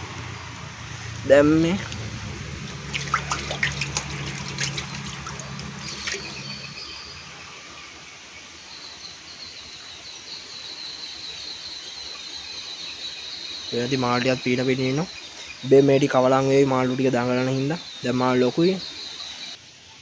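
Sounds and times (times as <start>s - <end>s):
pond water splashing: 0.0s - 12.7s.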